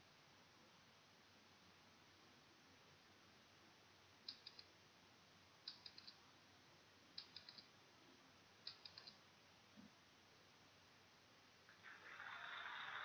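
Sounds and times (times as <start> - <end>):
timer ticking clicks: 4.3 - 4.7, 5.6 - 6.2, 7.2 - 7.7, 8.6 - 9.2.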